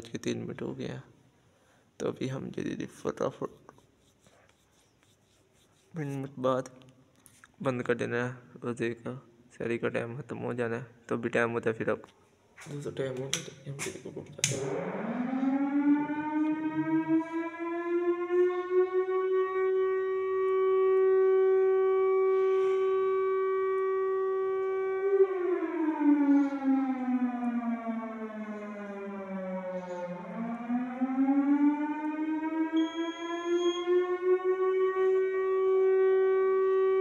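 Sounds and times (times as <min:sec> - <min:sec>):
siren wailing through loudspeakers: 0:14.4 - 0:37.0.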